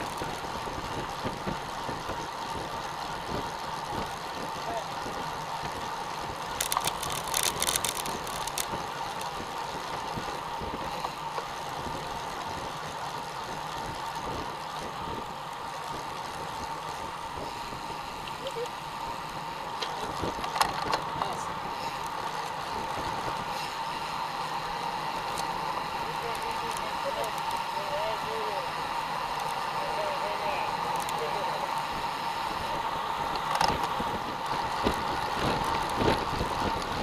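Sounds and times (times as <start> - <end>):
bicycle clicks and rattles: 0.0 - 37.0
bicycle tyre and wind noise: 0.0 - 37.0.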